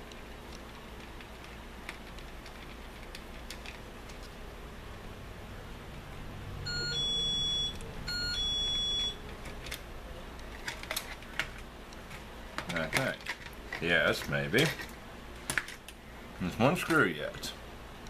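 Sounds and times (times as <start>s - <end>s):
electronic beeps: 6.7s - 9.2s.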